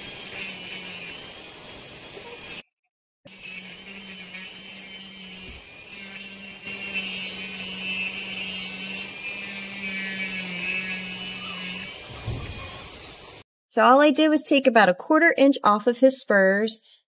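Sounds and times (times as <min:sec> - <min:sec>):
rotary tool grinding: 0:00.0 - 0:02.7, 0:03.3 - 0:13.4.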